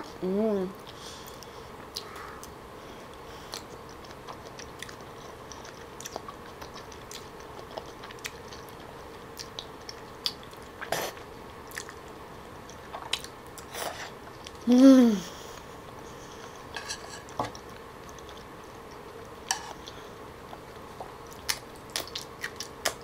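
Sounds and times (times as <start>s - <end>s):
slurping and chewing: 12.7s - 14.6s.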